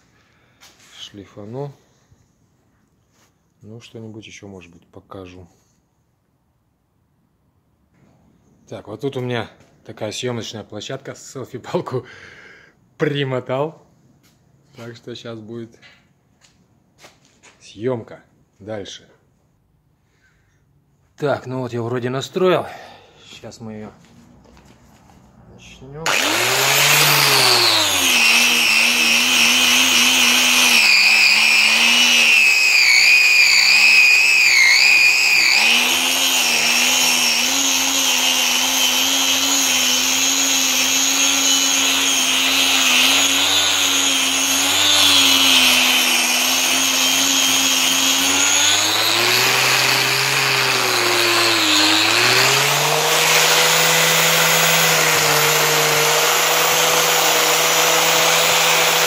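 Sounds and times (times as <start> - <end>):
electric grinder sanding metal: 26.1 - 59.0.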